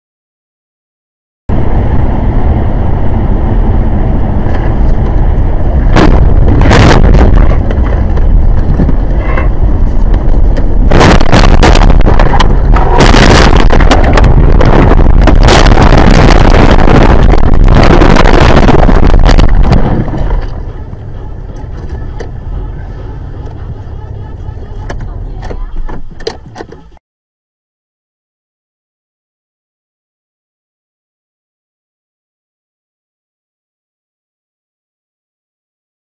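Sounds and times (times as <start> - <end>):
vehicle rumbling: 1.5 - 27.0.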